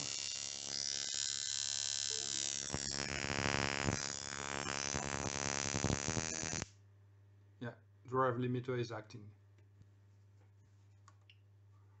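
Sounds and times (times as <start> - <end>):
ignition sparks buzzing: 0.0 - 6.7.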